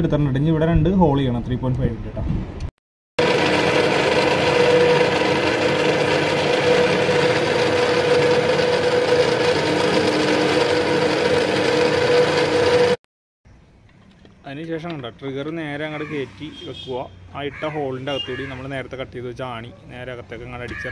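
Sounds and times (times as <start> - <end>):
drill press motor hum: 3.2 - 13.0.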